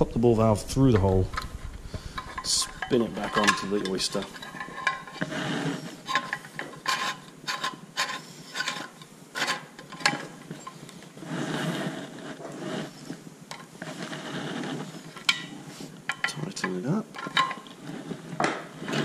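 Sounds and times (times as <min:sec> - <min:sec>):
metal rubbing and scraping: 0:00.0 - 0:19.0.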